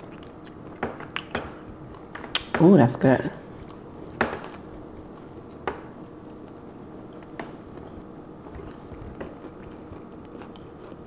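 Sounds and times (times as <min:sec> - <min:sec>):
person chewing: 0:00.0 - 0:02.5, 0:03.4 - 0:11.0.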